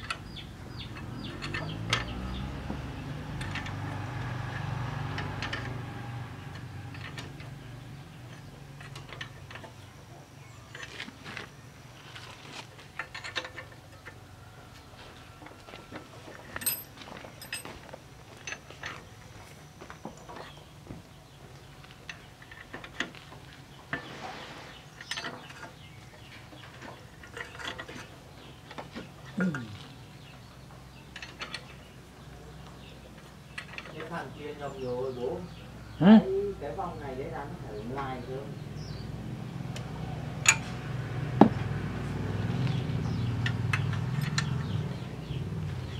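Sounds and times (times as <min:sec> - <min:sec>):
metal tools clicking: 0:16.4 - 0:17.7, 0:40.4 - 0:40.7
metallic clicks of hand tools: 0:39.8 - 0:40.8.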